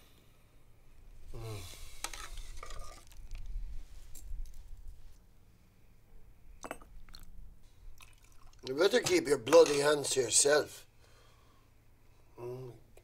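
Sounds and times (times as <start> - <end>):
liquid pouring into mug: 8.0 - 8.7.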